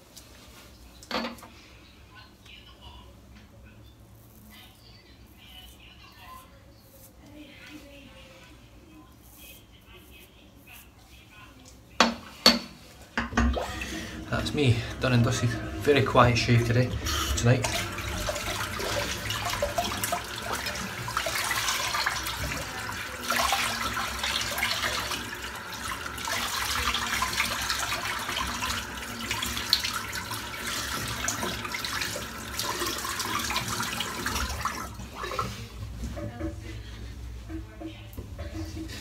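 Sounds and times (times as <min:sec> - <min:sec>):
tap running into sink: 0:13.2 - 0:16.5
water splashing: 0:13.4 - 0:35.7.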